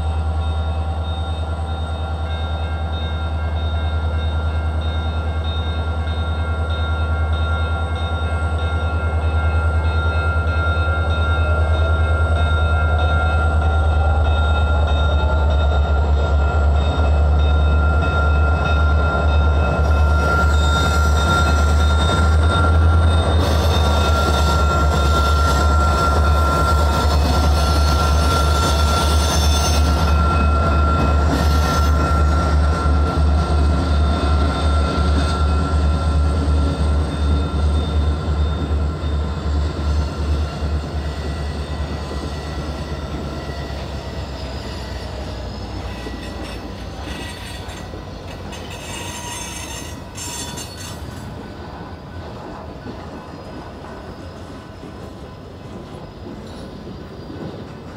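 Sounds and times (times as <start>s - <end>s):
diesel locomotive engine rumble: 0.0s - 57.9s
high wheel squeal: 19.7s - 51.4s.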